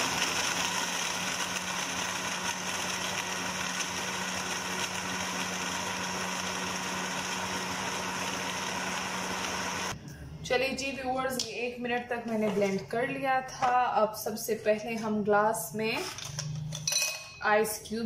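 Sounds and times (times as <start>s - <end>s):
blender motor humming: 0.0s - 10.0s.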